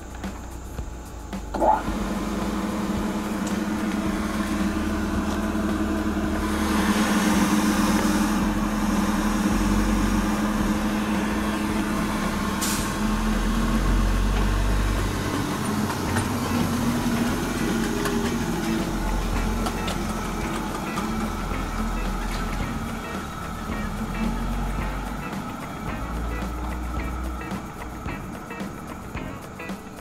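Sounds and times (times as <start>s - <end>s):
mill machine humming: 0.0s - 30.0s.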